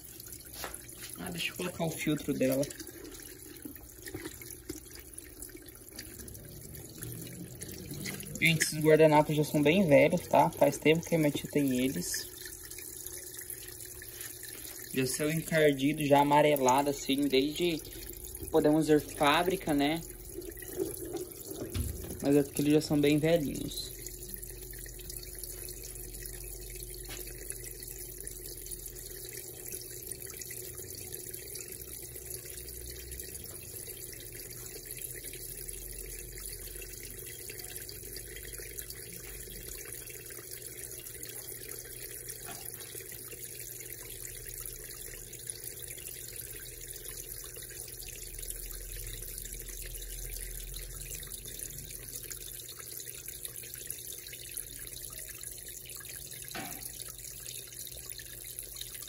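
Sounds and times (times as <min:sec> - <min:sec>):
water pouring into washing machine: 0:00.0 - 0:59.0.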